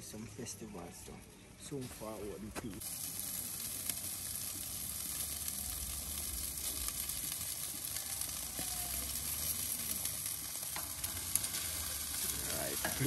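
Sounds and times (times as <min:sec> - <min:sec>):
chicken sizzling on charcoal grill: 0:00.1 - 0:13.0
small crackles: 0:02.6 - 0:13.0.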